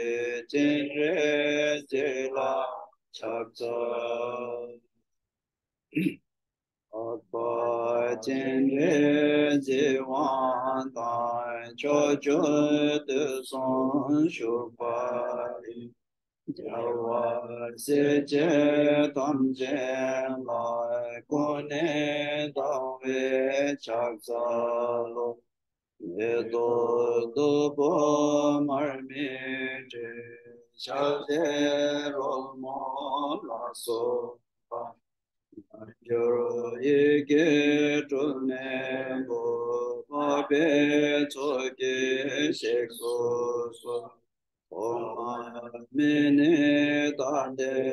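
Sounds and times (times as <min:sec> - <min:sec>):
man chanting: 0:00.0 - 0:04.8, 0:07.0 - 0:15.8, 0:16.5 - 0:25.4, 0:26.0 - 0:35.0, 0:35.6 - 0:47.9.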